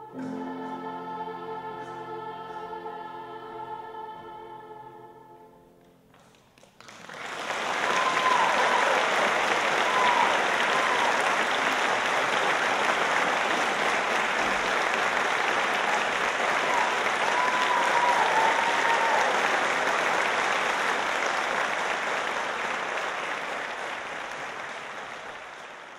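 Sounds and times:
audience applauding: 6.1s - 25.9s.

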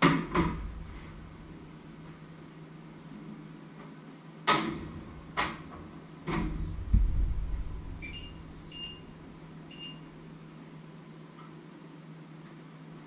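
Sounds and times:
oven door thud: 0.0s - 1.7s
short electronic beeps: 8.0s - 9.1s, 9.7s - 10.1s.

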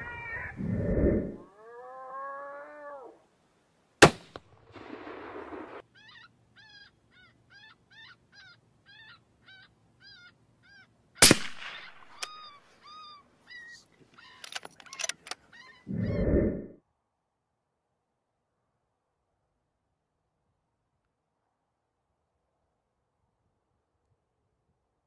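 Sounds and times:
gunshots: 11.2s - 12.2s.

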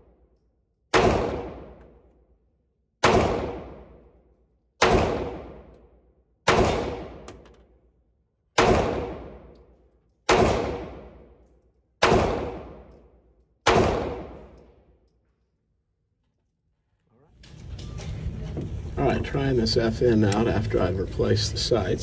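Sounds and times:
pistol shots ringing indoors: 0.0s - 16.0s.

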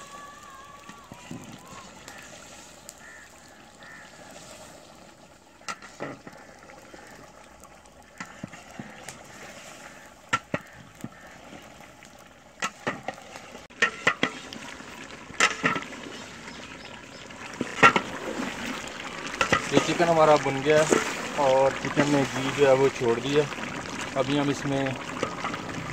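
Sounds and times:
low frying sizzle: 0.0s - 25.9s
ladle scraping and knocking pot: 13.7s - 14.6s, 15.4s - 16.2s, 17.6s - 18.2s, 19.4s - 20.0s, 20.8s - 22.4s.

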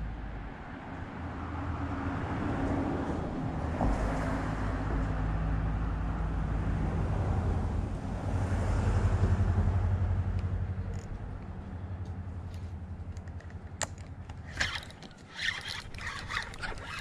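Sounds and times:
vehicle engine humming: 5.0s - 17.0s.

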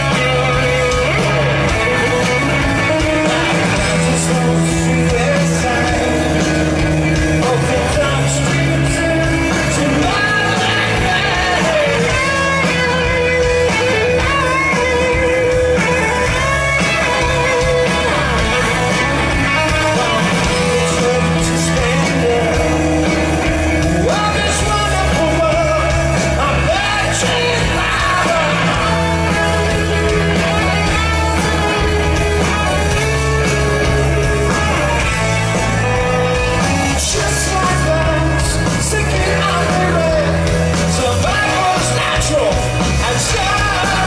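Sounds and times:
bass guitar: 0.0s - 44.0s
distorted electric guitar: 0.0s - 44.0s
drums: 0.0s - 44.0s
person singing: 0.0s - 44.0s.

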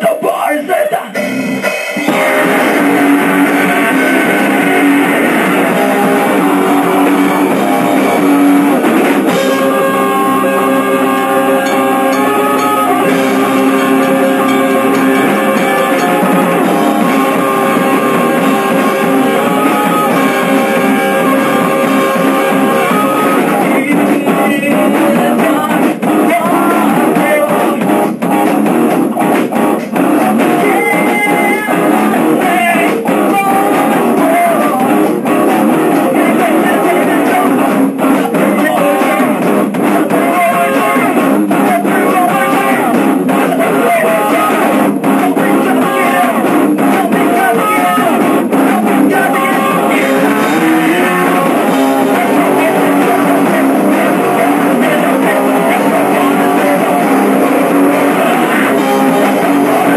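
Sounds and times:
drum kit: 0.0s - 59.9s
electric guitar: 0.0s - 59.9s
rock band playing live: 0.0s - 59.9s.

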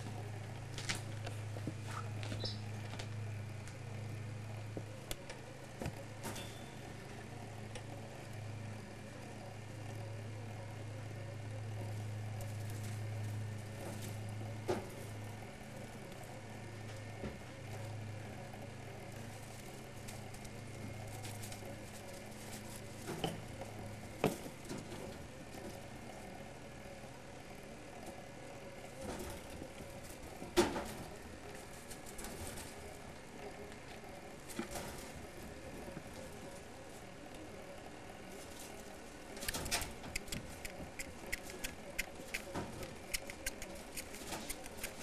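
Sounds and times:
steady low hum: 0.0s - 45.0s
faint ticks and rustles: 11.6s - 27.2s, 27.9s - 45.0s.

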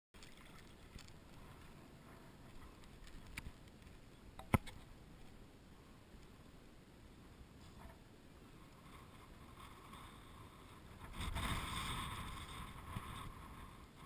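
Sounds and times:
water lapping around legs: 0.2s - 1.4s.

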